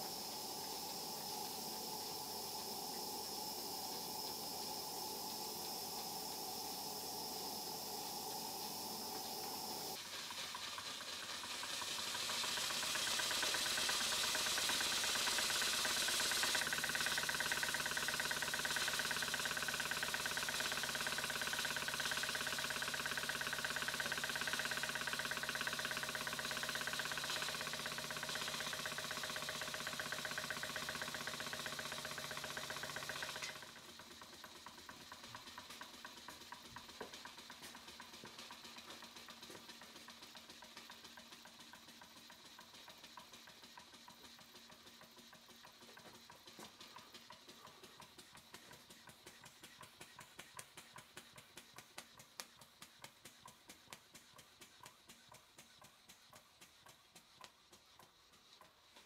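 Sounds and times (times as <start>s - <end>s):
loud steady hiss with hum: 0.0s - 44.9s
model steam engine ticking: 0.0s - 59.0s.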